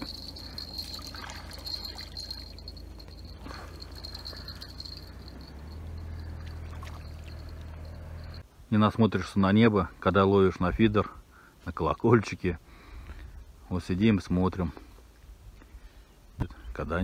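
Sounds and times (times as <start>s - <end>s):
water trickling and splashing: 0.0s - 5.4s, 6.2s - 7.9s
steady high-pitched trill: 0.0s - 8.4s.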